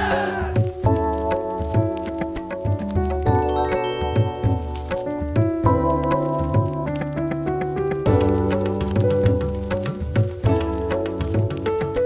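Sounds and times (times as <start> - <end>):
background music with steady beat: 0.0 - 12.0
high bell-like notes: 3.3 - 4.7.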